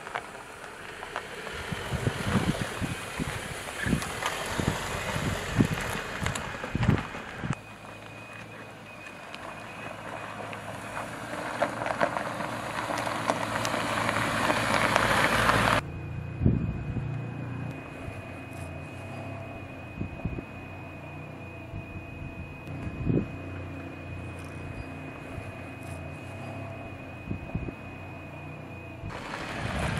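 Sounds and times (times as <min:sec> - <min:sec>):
tyre noise on dirt track: 0:00.0 - 0:15.8, 0:29.0 - 0:29.9
low hum: 0:00.0 - 0:29.9
wind on microphone: 0:01.6 - 0:07.6, 0:16.4 - 0:17.1, 0:20.0 - 0:20.5, 0:21.7 - 0:23.4, 0:27.2 - 0:27.8, 0:29.0 - 0:29.9.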